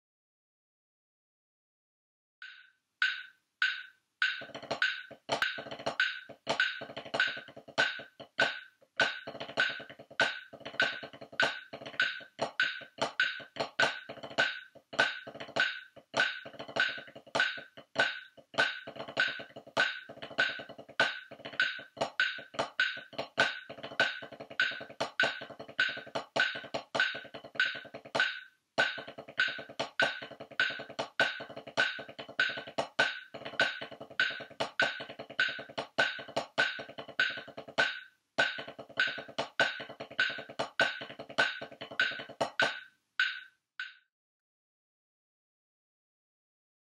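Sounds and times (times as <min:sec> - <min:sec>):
drumsticks on practice pad: 0:02.4 - 0:44.0.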